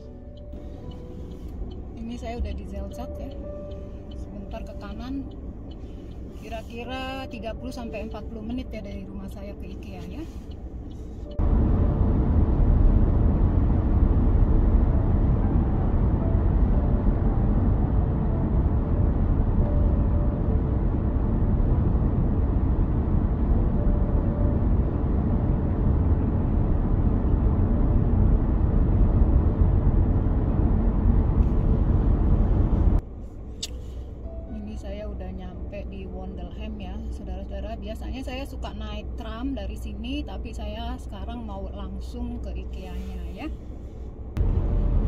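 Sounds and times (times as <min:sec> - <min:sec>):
tyre and wind noise in car: 0:10.8 - 0:33.5, 0:43.6 - 0:45.0.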